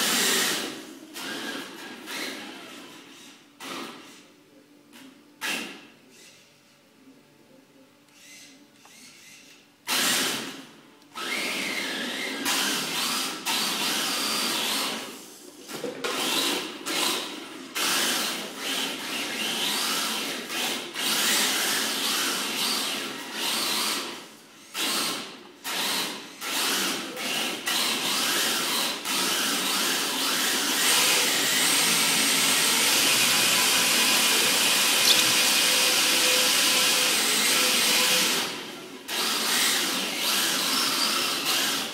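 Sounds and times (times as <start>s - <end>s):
electric toy car motor whining: 17.8s - 41.9s.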